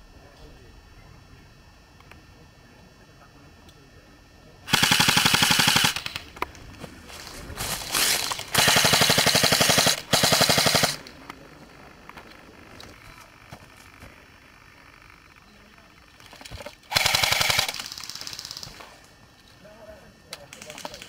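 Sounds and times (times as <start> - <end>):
airsoft rifle full-auto bursts: 4.7 - 6.3, 7.9 - 11.1, 16.9 - 18.8
faint rapid fire: 4.7 - 6.4, 7.8 - 11.3, 16.9 - 18.8.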